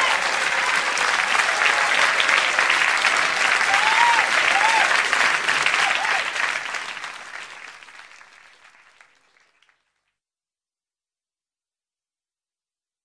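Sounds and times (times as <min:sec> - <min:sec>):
short cheers: 0:00.0 - 0:06.6
crowd applauding: 0:00.0 - 0:10.0.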